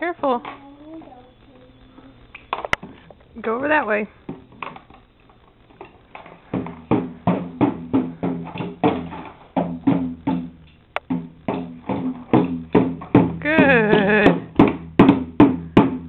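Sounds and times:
toy drum beaten with sticks: 6.5 - 16.0.

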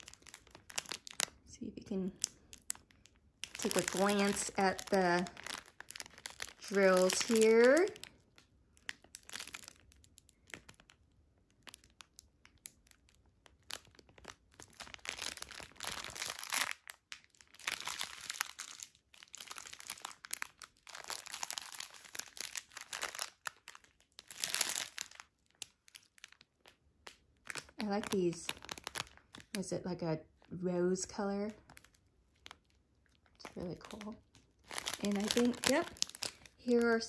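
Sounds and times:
plastic bag crinkling: 0.0 - 37.0.

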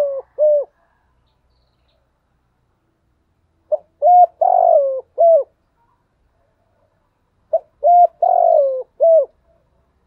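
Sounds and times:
dove cooing: 0.0 - 1.0, 3.7 - 5.6, 7.5 - 9.6.

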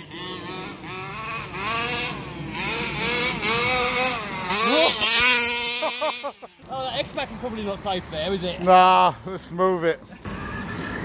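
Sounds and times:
two-stroke engine revving: 0.0 - 6.7, 10.2 - 11.0.

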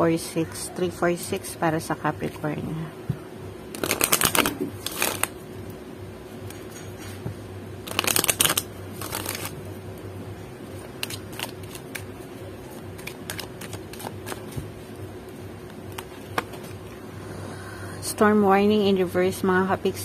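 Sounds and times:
faint steady hum: 0.0 - 20.0
cards riffling: 3.7 - 5.4, 7.8 - 9.6, 10.7 - 14.6, 15.6 - 16.9
cards tapping and sliding: 7.9 - 9.5, 12.7 - 14.7, 15.9 - 16.8.

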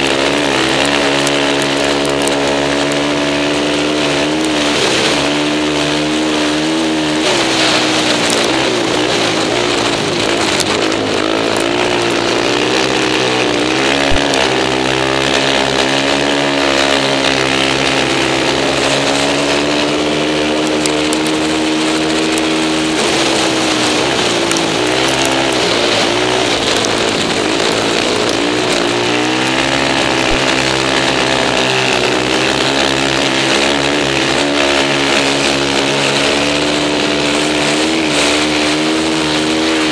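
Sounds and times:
quad engine revving high: 0.0 - 39.9.

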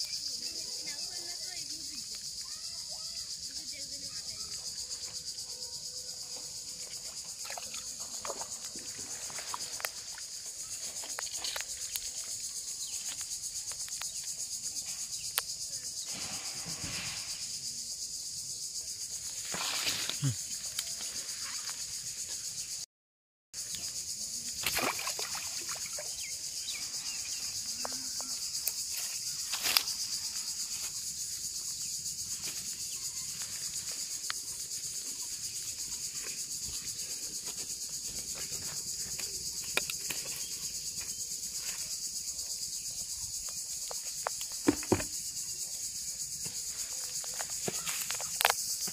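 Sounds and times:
high-pitched insect chorus: 0.0 - 22.9, 23.6 - 48.9
water splashing: 7.0 - 10.1, 24.6 - 26.2.

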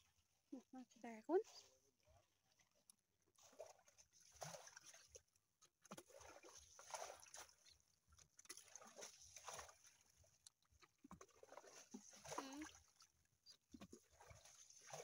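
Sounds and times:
water poured from plastic bucket: 3.4 - 5.2, 5.8 - 10.0.

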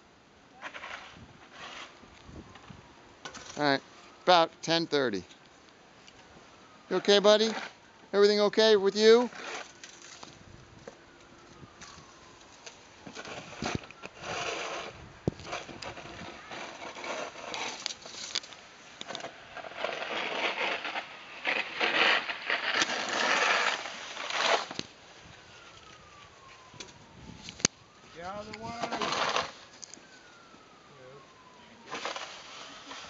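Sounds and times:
scraping and rustling: 0.6 - 3.8, 9.0 - 30.5, 31.4 - 33.0.

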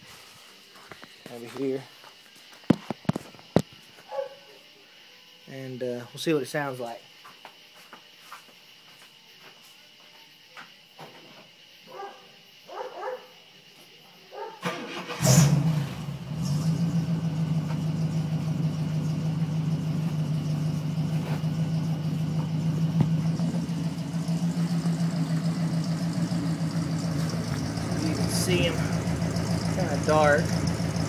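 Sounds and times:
engine starting and idling: 14.6 - 31.0.

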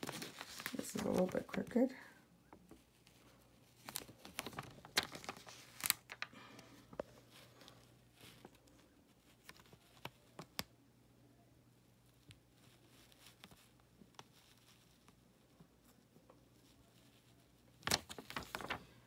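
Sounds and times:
plastic sheet crinkling: 0.0 - 2.0, 3.0 - 6.4, 17.0 - 19.0.

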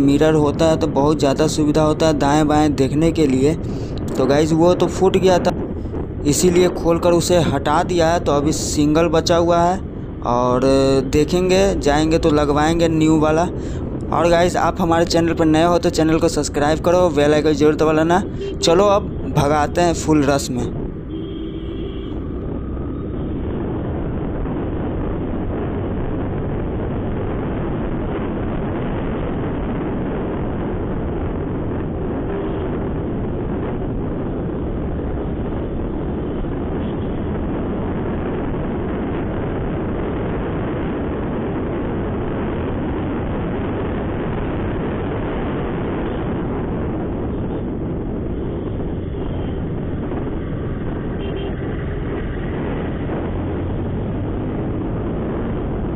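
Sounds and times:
wind rush on microphone: 0.0 - 55.9.

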